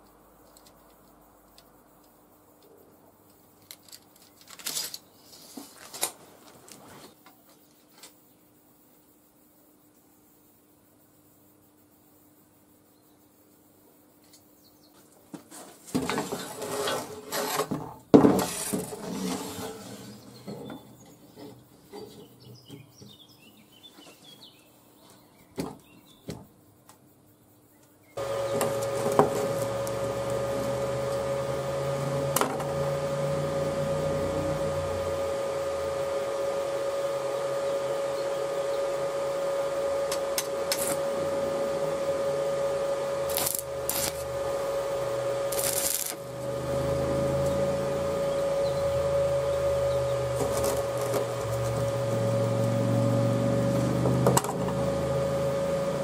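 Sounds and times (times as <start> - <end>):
metal knocking and scraping: 15.9 - 22.4
machine hum with whine: 28.2 - 56.0.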